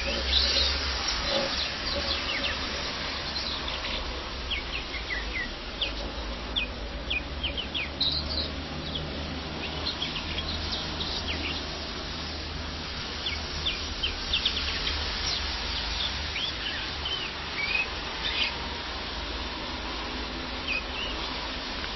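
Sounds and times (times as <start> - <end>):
low hum and hiss: 0.0 - 21.9
finch chirping: 3.3 - 11.7, 13.2 - 18.6, 20.6 - 21.2.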